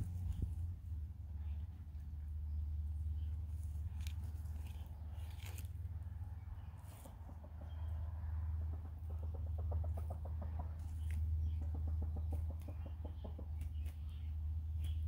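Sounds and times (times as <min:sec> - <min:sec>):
steady low rumble: 0:00.0 - 0:15.0
hens clucking softly: 0:06.6 - 0:14.9.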